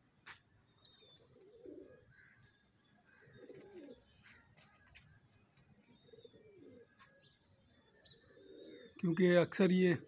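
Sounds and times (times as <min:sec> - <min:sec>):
pigeons cooing: 0:00.8 - 0:02.5, 0:03.1 - 0:04.1, 0:05.8 - 0:07.2, 0:08.2 - 0:09.0.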